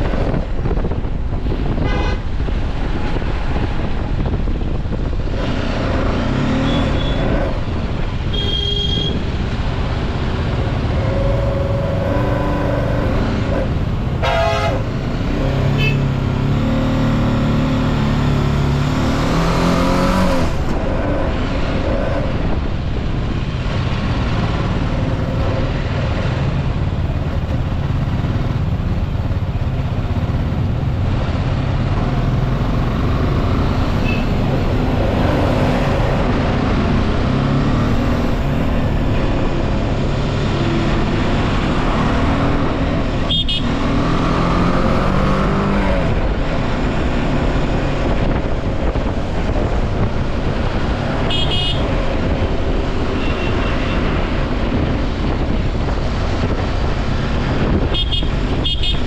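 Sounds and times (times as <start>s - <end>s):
vehicle horn honking: 1.8s - 2.2s, 8.3s - 9.2s, 14.2s - 14.8s, 15.8s - 16.1s, 34.0s - 34.4s, 43.3s - 43.7s, 51.3s - 51.9s, 53.2s - 54.1s, 57.9s - 59.0s.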